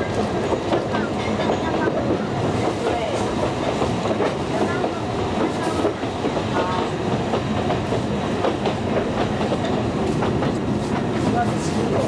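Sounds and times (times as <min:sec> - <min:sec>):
train rumble: 0:00.0 - 0:12.0.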